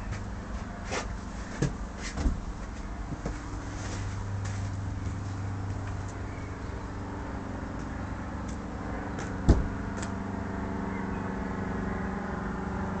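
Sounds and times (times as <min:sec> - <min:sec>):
steady low hum: 0:00.0 - 0:13.0
wooden door shutting: 0:09.4 - 0:09.8.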